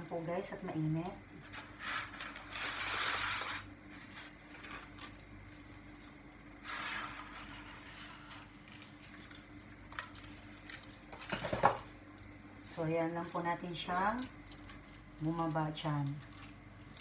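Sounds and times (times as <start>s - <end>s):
dry spaghetti rustling in a pot: 0.0s - 12.0s
steady low hum: 0.0s - 17.0s.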